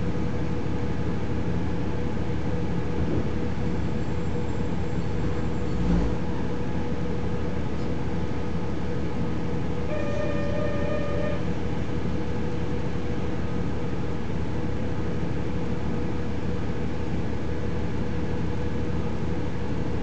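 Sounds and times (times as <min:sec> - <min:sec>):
diesel railcar engine idling: 0:00.0 - 0:20.0
short single tone: 0:09.9 - 0:11.5.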